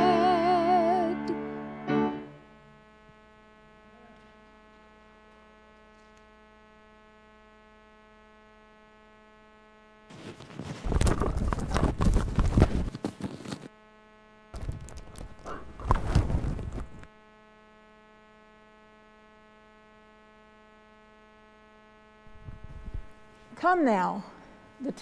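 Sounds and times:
electrical hum: 0:00.0 - 0:25.0
rustling and knocking on microphone: 0:10.1 - 0:13.7, 0:14.6 - 0:17.1, 0:22.3 - 0:23.2.

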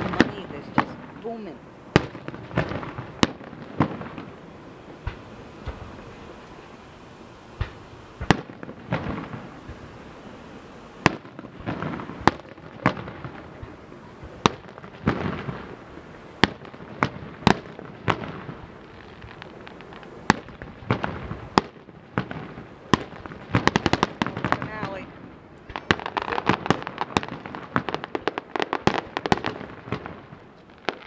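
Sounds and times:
fireworks bursting with bangs: 0:00.0 - 0:31.0
fireworks crackling: 0:00.0 - 0:31.0
soft fireworks booms: 0:00.0 - 0:31.0.

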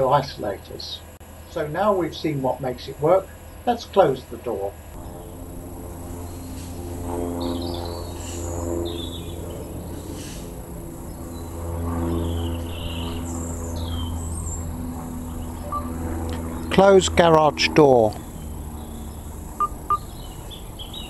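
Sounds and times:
birds chirping: 0:00.0 - 0:21.0
low hum: 0:04.7 - 0:21.0.

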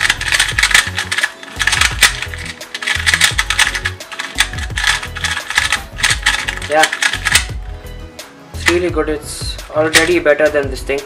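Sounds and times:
speed cube clacking: 0:00.0 - 0:07.6
background music: 0:00.0 - 0:11.0.

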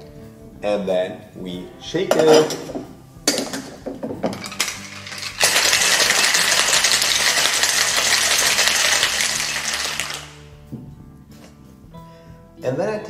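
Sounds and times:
ice rattling in cocktail shaker: 0:04.2 - 0:10.4.

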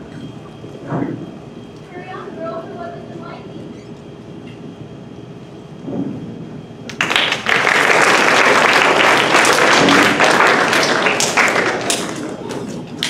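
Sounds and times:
audience applause: 0:06.9 - 0:13.0.

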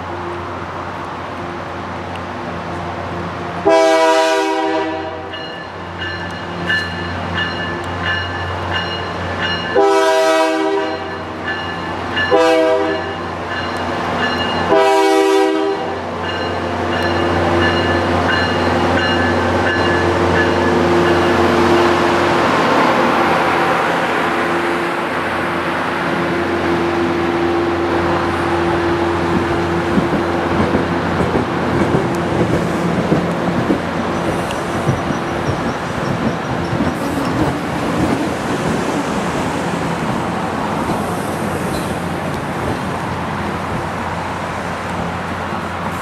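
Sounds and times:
train wheels rolling on rails: 0:00.0 - 0:46.0
locomotive air horn blasts: 0:03.6 - 0:05.3, 0:09.8 - 0:11.3, 0:12.3 - 0:13.2, 0:14.7 - 0:16.0.

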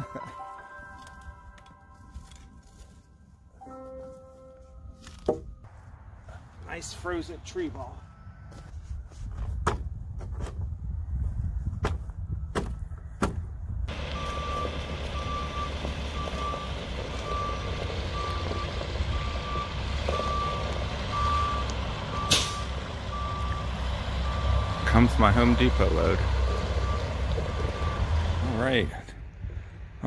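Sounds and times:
reversing alarm beeping: 0:13.9 - 0:26.1, 0:26.8 - 0:28.6
forklift engine running: 0:13.9 - 0:28.7.

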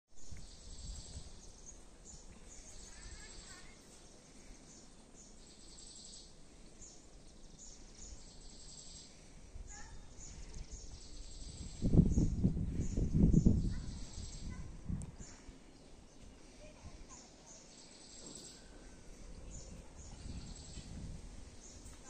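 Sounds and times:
wind rumble on microphone: 0:00.1 - 0:03.3, 0:09.5 - 0:15.6, 0:18.8 - 0:22.0
small birds chirping: 0:00.2 - 0:22.0.

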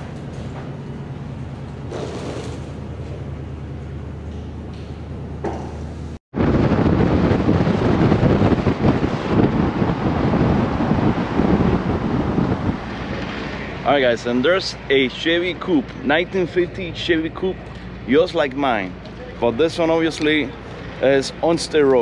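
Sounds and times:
steady low hum: 0:00.0 - 0:22.0
vehicle road noise: 0:00.0 - 0:22.0
wind rushing over microphone: 0:06.3 - 0:16.0.

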